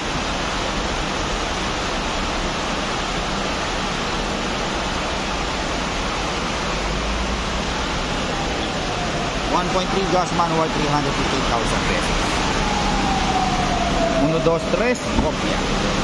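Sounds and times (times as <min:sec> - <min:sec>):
steady rushing noise: 0:00.0 - 0:16.0.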